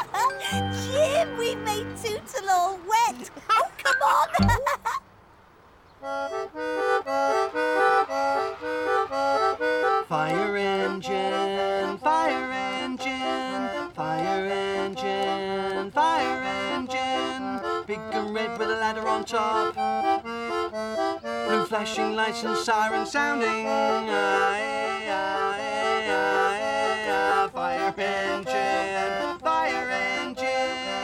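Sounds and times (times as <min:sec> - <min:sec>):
concertina playing chords: 0:00.0 - 0:02.3, 0:04.4 - 0:04.6, 0:06.0 - 0:13.9.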